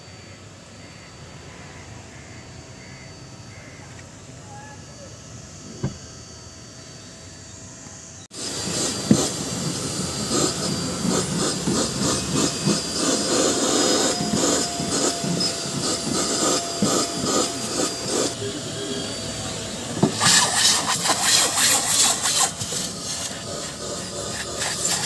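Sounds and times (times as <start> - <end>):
sharp hissing: 8.4 - 25.0
rubbing against upholstery: 8.5 - 18.4, 20.0 - 25.0.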